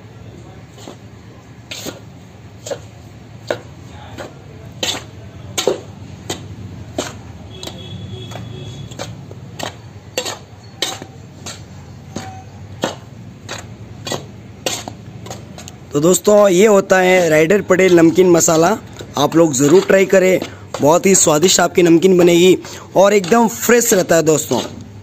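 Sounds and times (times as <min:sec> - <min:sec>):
metal spoon scraping metal bowl: 0:01.6 - 0:15.8.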